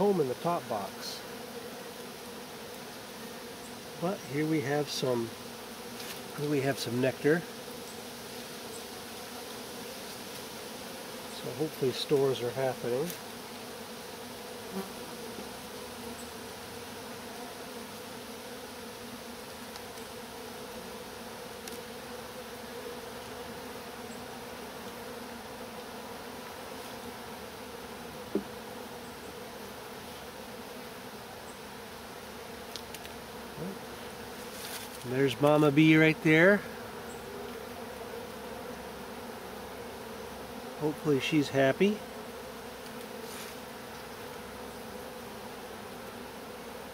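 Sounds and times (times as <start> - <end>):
bees buzzing: 0.0 - 46.9.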